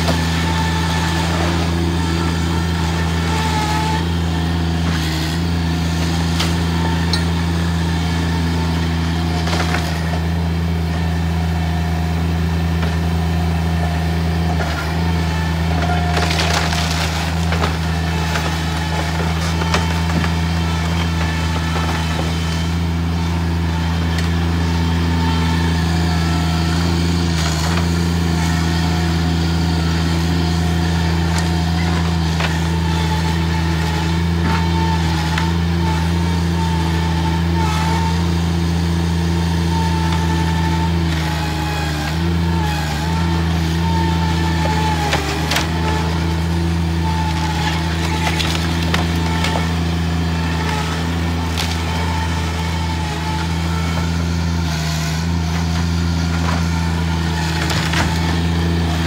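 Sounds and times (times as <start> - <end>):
loader engine at high revs: 0.0 - 59.0
sharp cracks of wood: 16.0 - 20.4, 47.6 - 49.8, 57.5 - 58.4.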